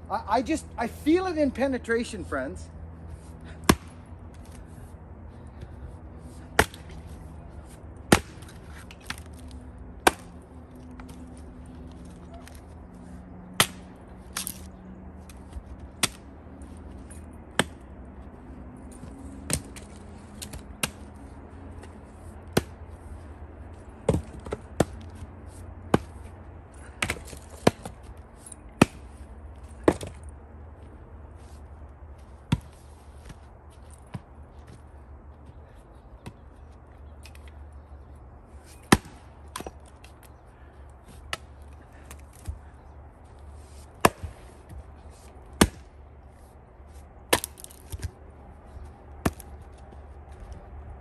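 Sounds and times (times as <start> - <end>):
axe chopping firewood: 3.6 - 4.5, 6.5 - 7.0, 8.0 - 11.2, 13.5 - 14.7, 16.0 - 16.3, 17.5 - 17.8, 19.4 - 21.0, 24.0 - 25.0, 25.8 - 26.2, 26.8 - 29.1, 29.8 - 30.2, 38.8 - 40.2, 44.0 - 44.8, 45.5 - 46.0, 47.3 - 48.1, 49.2 - 49.5.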